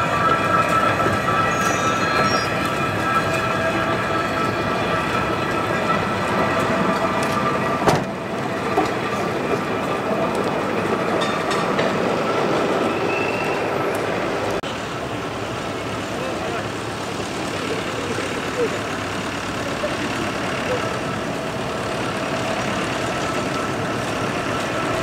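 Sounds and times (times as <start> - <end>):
steel wheels rolling on rails: 0.0 - 25.0.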